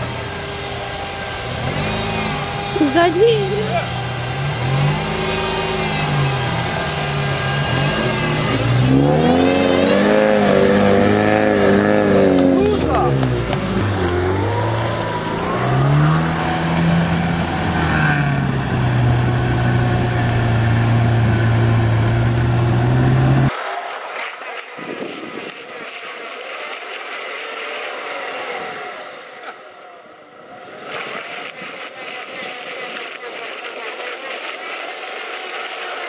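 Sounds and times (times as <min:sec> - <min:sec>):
vehicle engine revving under load: 0:00.0 - 0:23.6
noisy vehicle sound: 0:00.0 - 0:36.0.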